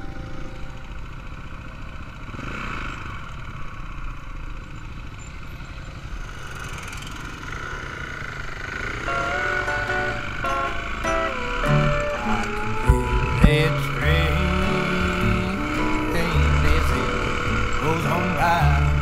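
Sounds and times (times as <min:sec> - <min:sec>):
dirt bike engine running: 0:00.0 - 0:19.0
wind noise on microphone: 0:12.8 - 0:15.6.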